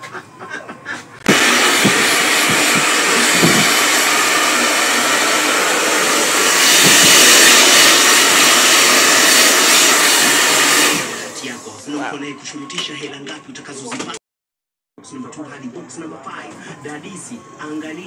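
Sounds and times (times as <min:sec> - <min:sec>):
hair dryer blowing: 0:01.2 - 0:11.8.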